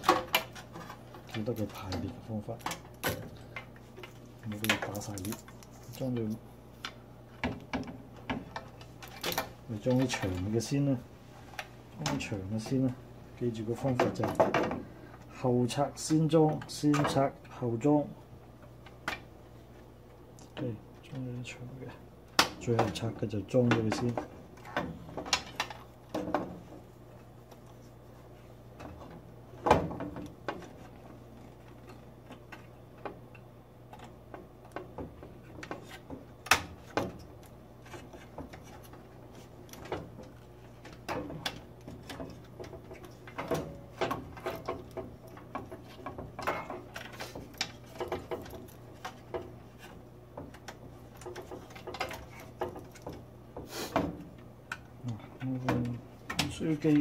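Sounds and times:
plastic parts clicking and knocking: 0.0 - 10.5, 13.8 - 14.8, 22.3 - 26.8, 28.8 - 57.0.

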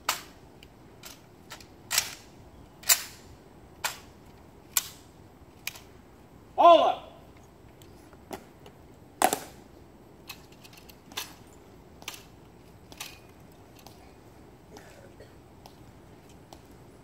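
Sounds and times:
shoes clicking on stone: 14.7 - 17.0.

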